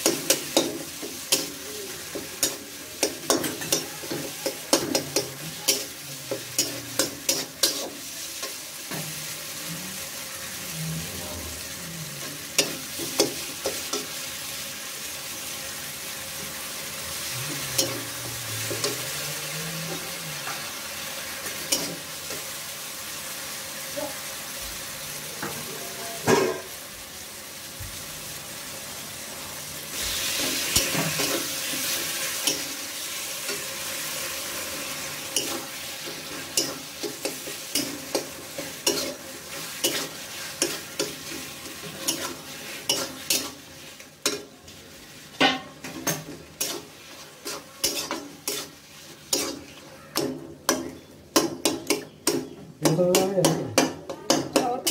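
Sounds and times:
masala sizzling in hot oil: 0:00.0 - 0:54.9
steel spatula scraping pan: 0:45.5 - 0:50.3
spatula tapping on pan: 0:50.2 - 0:54.9.

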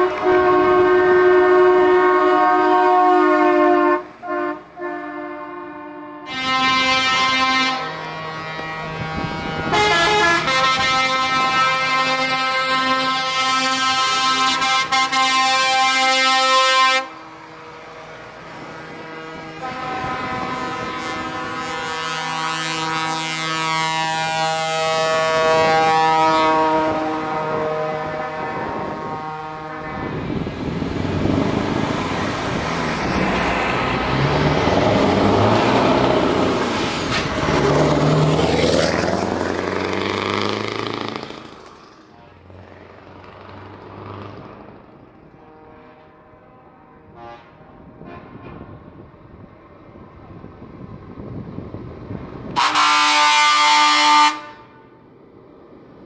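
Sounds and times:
truck air horns blasting: 0:00.0 - 0:30.8, 0:45.2 - 0:49.0, 0:52.5 - 0:55.0
truck passing close by: 0:00.0 - 0:46.2, 0:47.1 - 0:56.0
diesel truck engine pulling away: 0:30.1 - 0:45.3.

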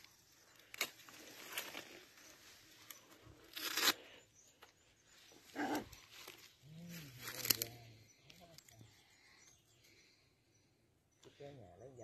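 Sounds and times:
dry grass rustling and crunching: 0:00.0 - 0:04.0, 0:05.3 - 0:08.5.

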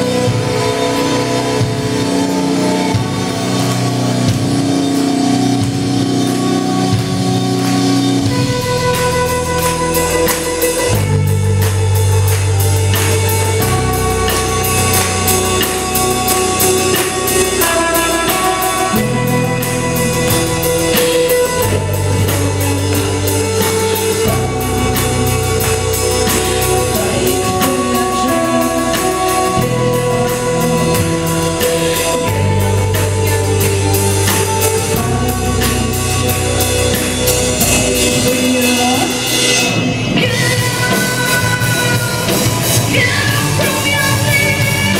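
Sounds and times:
bass guitar: 0:00.0 - 0:44.9
distorted electric guitars: 0:00.0 - 0:44.9
drum kit: 0:00.0 - 0:44.9
woman singing: 0:13.2 - 0:20.3, 0:20.9 - 0:44.9.

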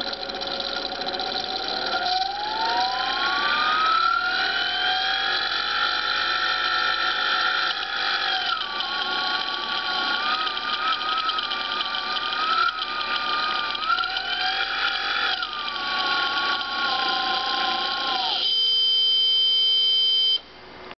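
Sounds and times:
small electric motor whining: 0:00.0 - 0:18.9.

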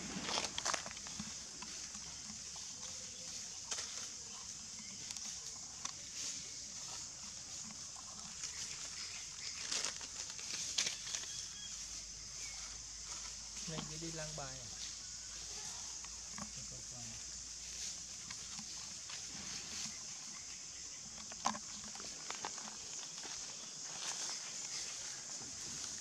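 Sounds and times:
rustling in dry leaves: 0:00.0 - 0:26.0
steady high hiss: 0:11.5 - 0:20.9.

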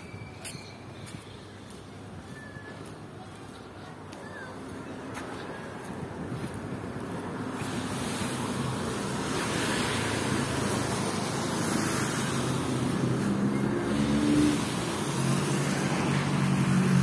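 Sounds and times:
vehicle engine hum: 0:03.2 - 0:17.0
passing vehicles rushing: 0:06.0 - 0:17.0.

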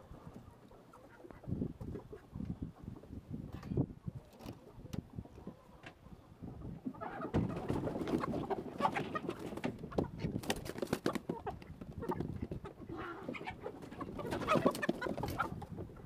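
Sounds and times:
chickens clucking and squawking: 0:00.0 - 0:16.0
wings flapping: 0:07.4 - 0:12.3, 0:13.4 - 0:15.5.

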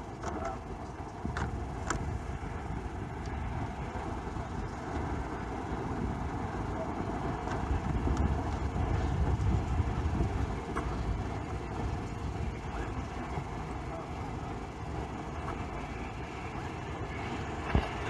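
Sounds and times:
steam train rumbling: 0:00.0 - 0:18.0.

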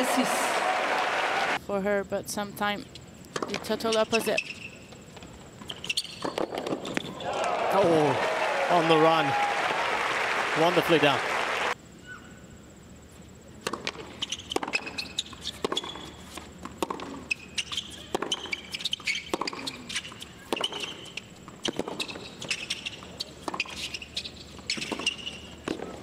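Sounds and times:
shoes squeaking on court: 0:03.4 - 0:07.2, 0:13.7 - 0:26.0
tennis ball bounces: 0:13.6 - 0:22.8.

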